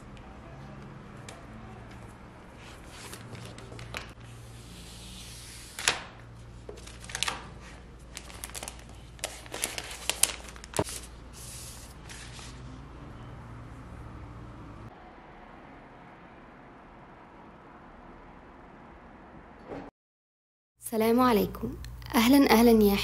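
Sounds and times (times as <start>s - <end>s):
plastic wrap rustling: 5.7s - 12.6s.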